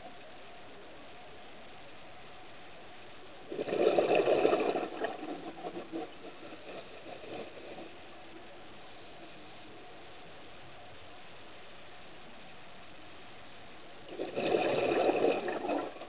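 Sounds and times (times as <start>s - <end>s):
faint steady hiss: 0.0s - 16.0s
underwater regulator bubbles: 3.4s - 10.0s, 14.0s - 16.0s.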